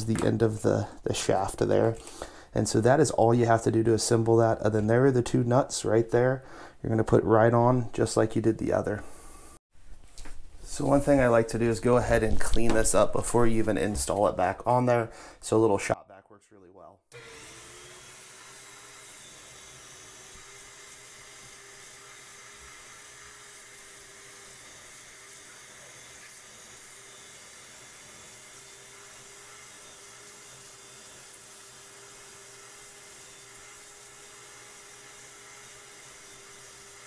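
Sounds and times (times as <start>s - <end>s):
shop vac whining: 17.1s - 37.0s.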